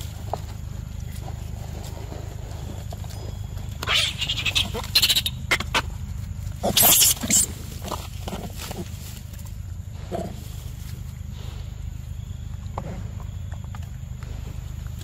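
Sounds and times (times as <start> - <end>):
monkeys squealing: 3.8 - 5.9, 6.6 - 7.6.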